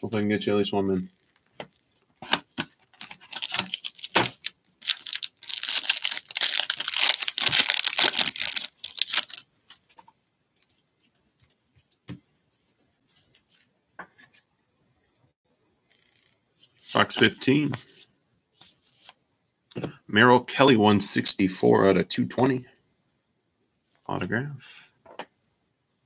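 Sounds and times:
plastic wrapper tearing and crinkling: 0:02.3 - 0:09.4.

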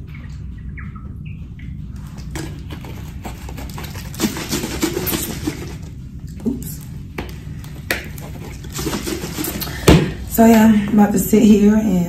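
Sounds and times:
steady low hum: 0:00.0 - 0:12.0
plastic bottle crinkling: 0:02.1 - 0:10.2.

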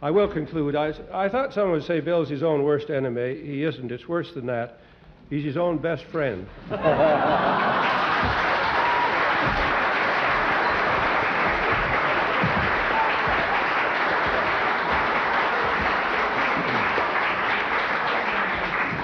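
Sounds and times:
audience applauding: 0:06.8 - 0:19.0.

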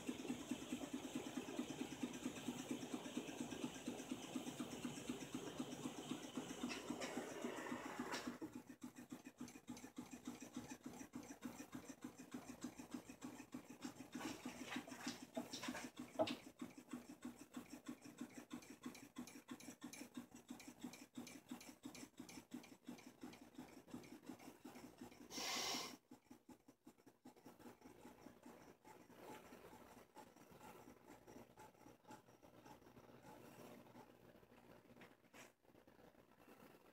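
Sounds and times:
hot-air engine fast ticking: 0:00.0 - 0:34.8.

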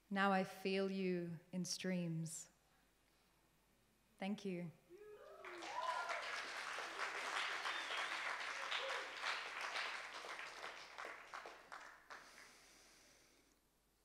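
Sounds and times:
audience applauding: 0:05.2 - 0:12.7.

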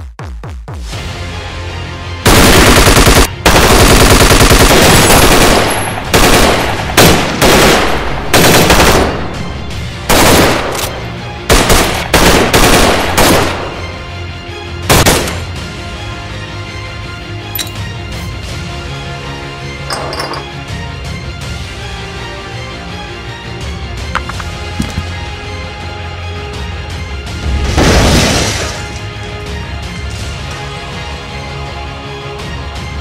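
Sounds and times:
low background music: 0:00.7 - 0:33.0
automatic gunfire: 0:02.3 - 0:09.2, 0:10.1 - 0:10.9, 0:11.5 - 0:13.7, 0:14.9 - 0:15.4.

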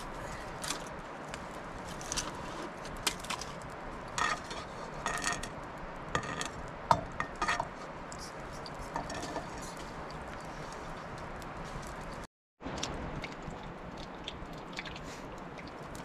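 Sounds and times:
wooden spatula scraping wok: 0:01.9 - 0:03.4, 0:04.1 - 0:05.5, 0:06.1 - 0:11.0.

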